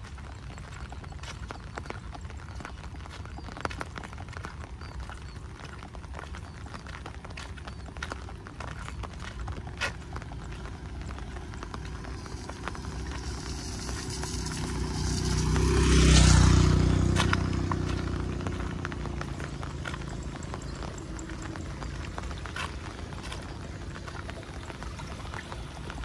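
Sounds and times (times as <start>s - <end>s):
steady rain: 0.0s - 26.0s
vehicle passing: 8.4s - 26.0s.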